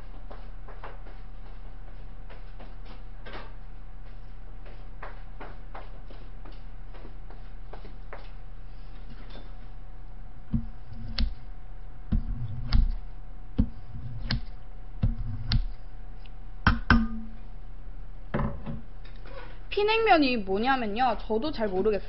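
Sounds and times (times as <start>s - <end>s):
dull knock of metal bowl: 16.7s - 17.4s.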